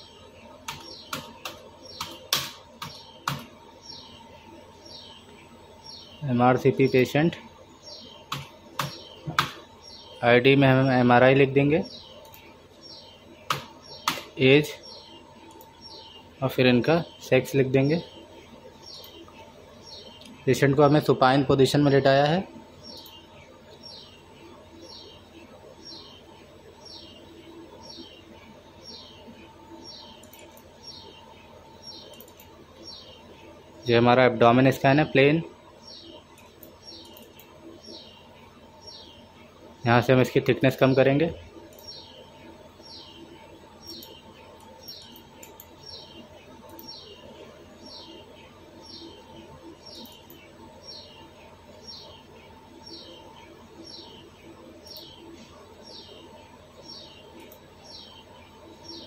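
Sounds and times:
bird chirping: 0.0s - 59.0s
faint steady hum: 0.0s - 59.0s
small bird calling: 35.5s - 39.6s, 40.8s - 59.0s.

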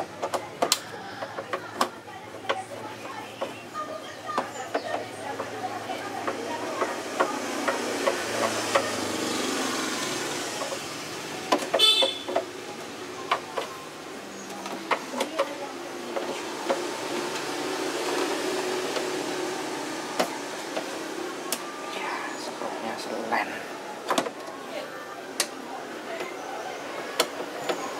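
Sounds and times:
steady rushing background noise: 0.0s - 27.9s.

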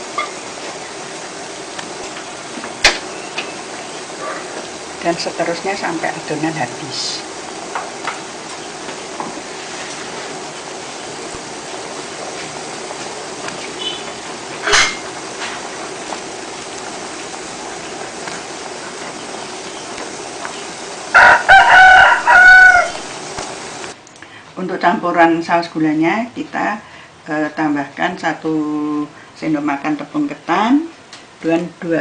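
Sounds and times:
pot simmering hiss: 0.0s - 32.0s
rooster crowing: 21.1s - 23.1s.

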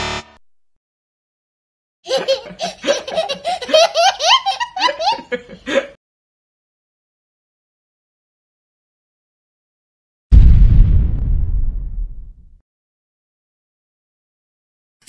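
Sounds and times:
child laughing: 2.1s - 6.0s.

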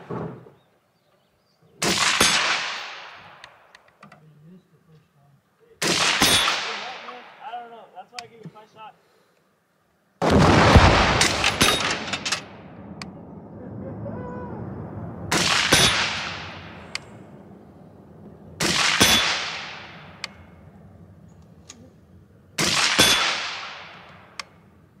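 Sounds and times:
suppressed rifle shots echoing: 1.8s - 3.8s, 5.8s - 7.4s, 10.2s - 13.2s, 15.3s - 24.9s.

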